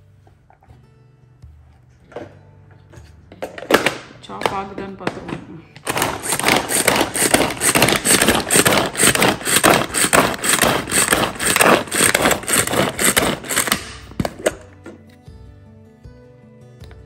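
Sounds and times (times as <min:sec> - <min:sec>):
manual food chopper whirring: 0:03.4 - 0:15.0.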